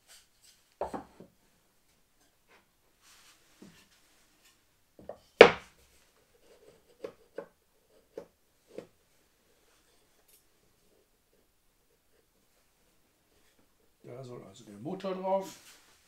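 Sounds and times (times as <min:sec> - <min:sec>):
wooden pieces knocking: 0:05.0 - 0:05.7.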